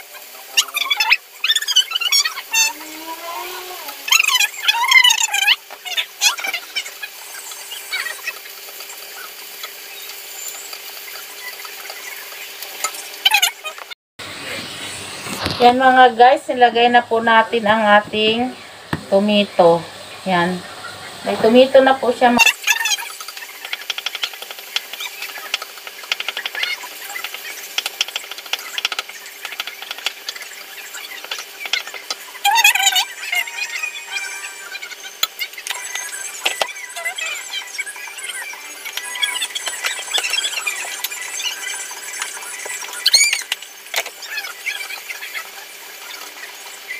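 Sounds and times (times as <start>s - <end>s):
onions sizzling: 0.0s - 46.9s
brief high-pitched sound: 32.5s - 42.4s.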